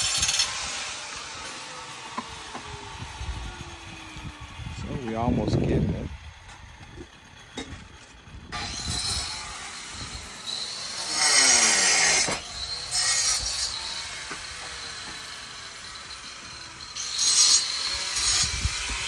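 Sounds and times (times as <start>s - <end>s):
masonry tool scraping stone: 0.0s - 1.5s, 7.6s - 19.0s.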